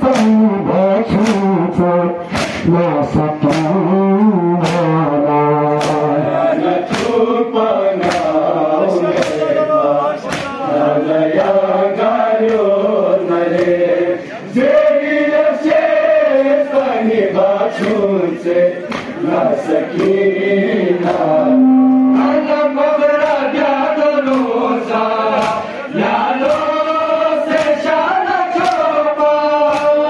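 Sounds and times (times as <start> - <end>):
crowd of men singing along: 0.0 - 30.0
man leading a chant: 0.0 - 30.0
hands slapping chests: 1.2 - 1.5, 2.2 - 2.7, 3.4 - 3.9, 4.6 - 5.0, 5.7 - 6.2, 6.8 - 7.2, 8.0 - 8.4, 9.0 - 10.6, 18.8 - 19.2, 24.2 - 24.6, 25.3 - 25.8, 27.5 - 27.8, 28.6 - 28.9, 29.6 - 30.0.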